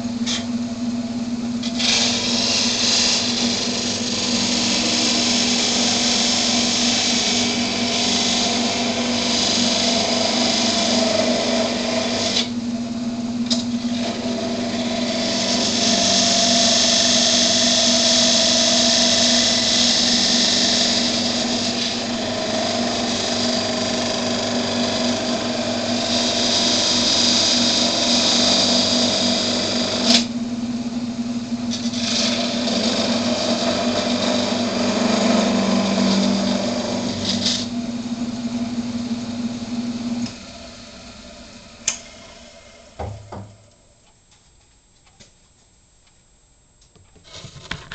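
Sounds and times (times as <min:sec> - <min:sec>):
wood lathe humming: 0:00.0 - 0:43.9.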